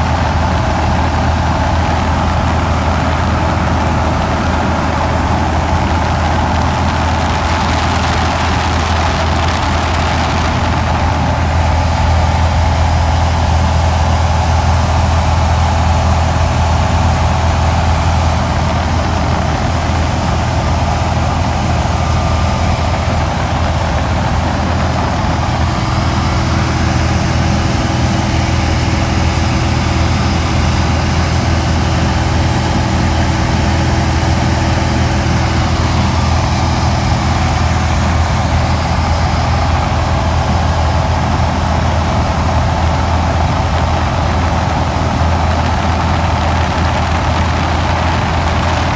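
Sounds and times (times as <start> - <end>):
light aircraft engine drone: 0.0 - 48.9
rushing air noise: 0.0 - 48.9.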